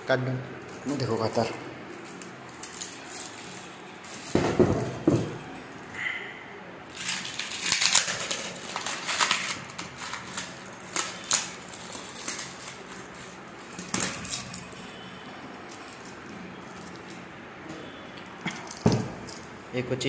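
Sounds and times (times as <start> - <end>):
knocks of parts handled: 4.3 - 5.4, 18.4 - 19.4
cardboard tearing and crackling: 6.9 - 14.7.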